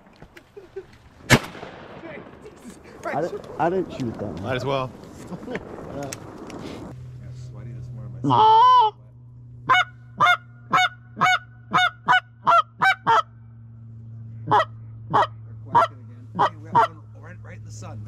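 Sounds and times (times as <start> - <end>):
duck call quacking: 8.3 - 9.0, 9.7 - 13.3, 14.4 - 17.0.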